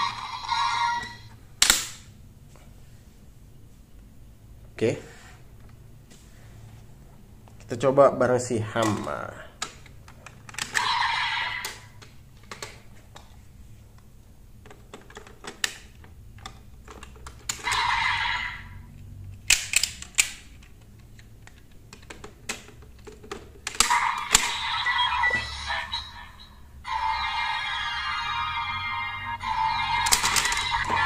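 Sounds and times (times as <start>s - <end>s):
electronic toy sound bursts: 10.8s - 11.7s, 17.6s - 18.6s, 23.9s - 31.0s
plastic toy clicks and clacks: 30.0s - 31.0s.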